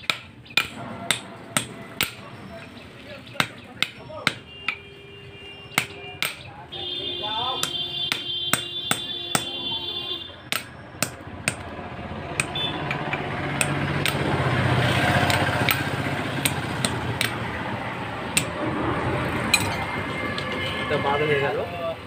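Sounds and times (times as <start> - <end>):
hammer tapping metal shaft: 0.0 - 2.2, 3.4 - 4.8, 5.7 - 6.5, 7.6 - 9.6, 10.5 - 11.7, 12.4 - 14.3, 15.1 - 17.5, 18.3 - 18.6.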